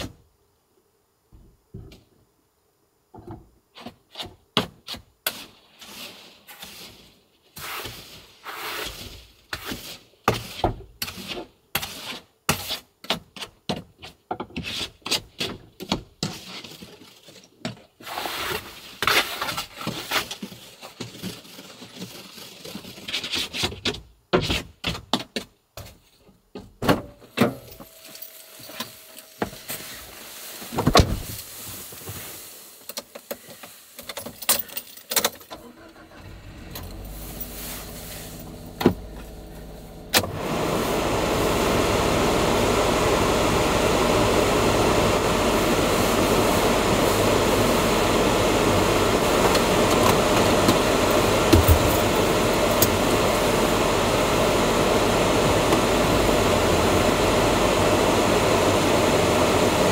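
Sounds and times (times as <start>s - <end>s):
truck engine starting and running: 35.5s - 59.9s.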